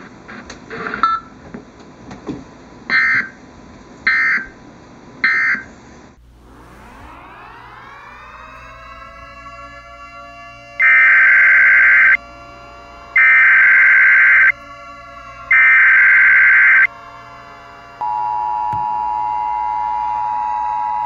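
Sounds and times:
two-tone attention signal: 18.0s - 21.0s.

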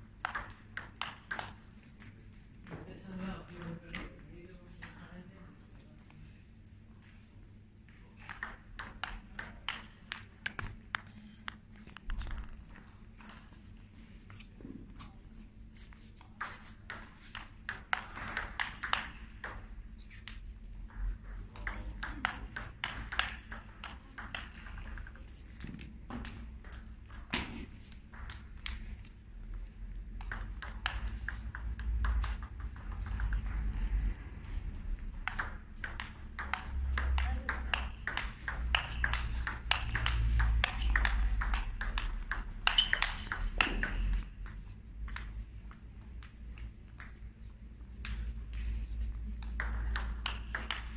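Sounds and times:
table tennis ball clicking: 0.2s - 2.3s, 7.9s - 12.6s, 16.4s - 27.5s, 30.2s - 33.8s, 35.1s - 47.2s, 49.4s - 50.9s.

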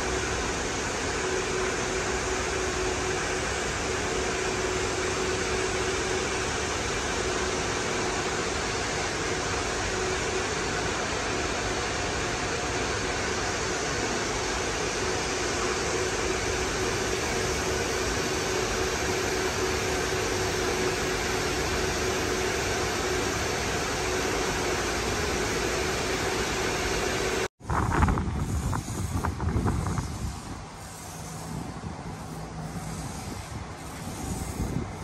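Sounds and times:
machine motor whirring: 28.4s - 35.0s.

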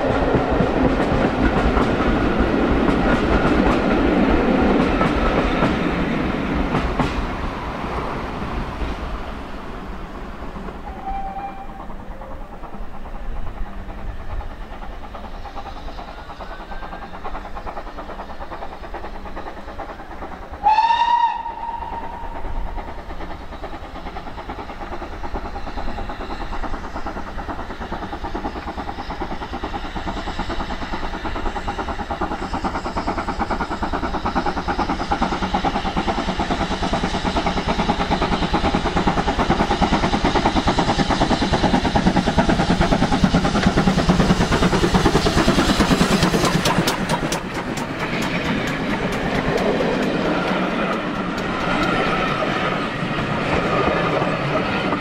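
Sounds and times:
steam locomotive chuffing: 0.0s - 55.0s
short high steam whistle: 10.8s - 12.0s, 20.6s - 22.6s.

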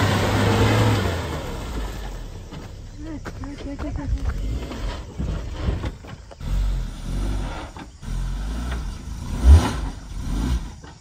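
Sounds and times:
car engine revving: 0.0s - 2.8s, 6.3s - 11.0s.

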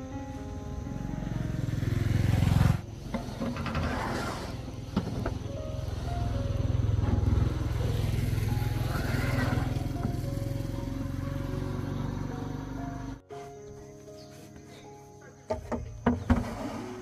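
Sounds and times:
faint background music: 0.0s - 17.0s
vehicle engine rumbling: 0.6s - 13.3s.

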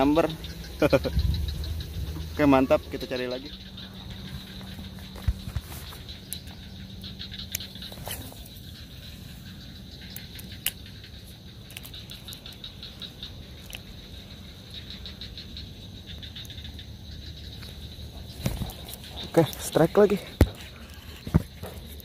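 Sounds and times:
fishing reel gears ticking: 6.0s - 8.0s, 8.6s - 18.0s.

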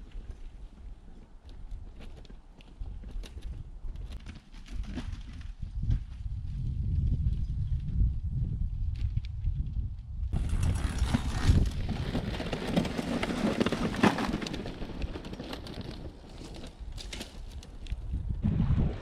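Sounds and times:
wind rumbling on microphone: 0.0s - 19.0s
bike tyres crunching over grit: 10.3s - 18.2s.

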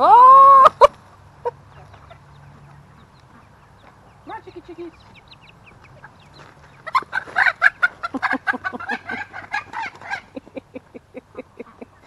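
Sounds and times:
chicken squawking: 0.0s - 2.2s, 4.9s - 10.6s
chicken clucking: 0.5s - 12.0s.

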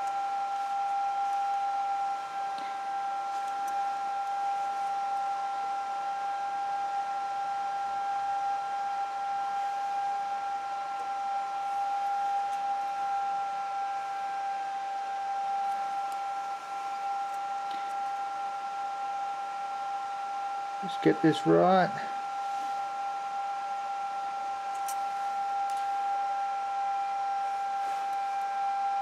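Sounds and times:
high-pitched electrical whine: 0.0s - 29.0s.

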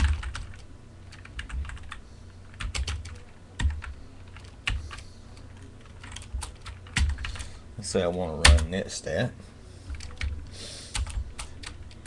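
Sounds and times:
keyboard typing: 0.0s - 7.4s, 9.9s - 12.0s.

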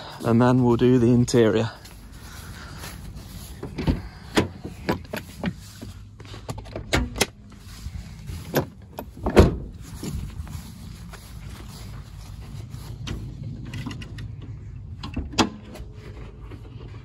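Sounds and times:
steady low rumble: 0.0s - 17.0s
car door and bonnet latches clunking: 8.5s - 9.7s.

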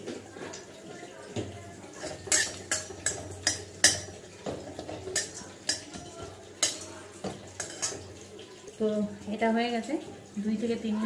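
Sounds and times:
metal spatula scraping metal pan: 2.0s - 4.1s, 7.6s - 8.0s.

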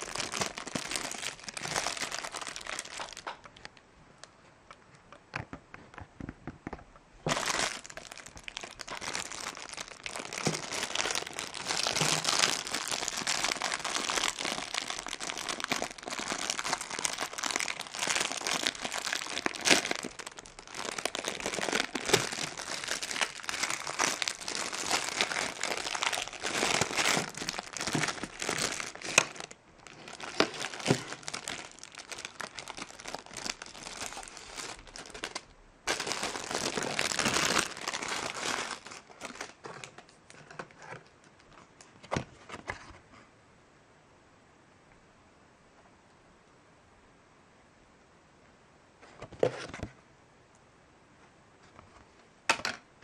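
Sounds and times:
plastic bag crinkling: 0.0s - 3.8s, 7.2s - 41.6s.

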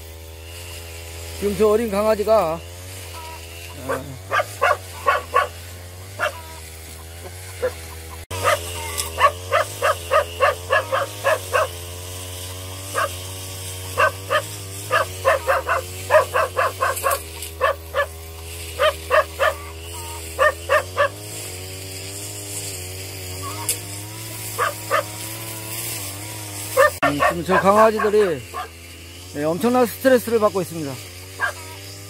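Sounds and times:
dogs barking: 3.2s - 21.4s, 24.2s - 26.0s, 26.6s - 28.9s, 31.2s - 31.9s.

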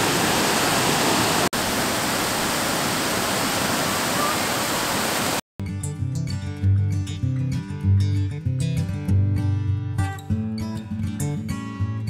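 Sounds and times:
falling water rushing: 0.0s - 5.4s
acoustic guitar music: 5.6s - 12.0s.

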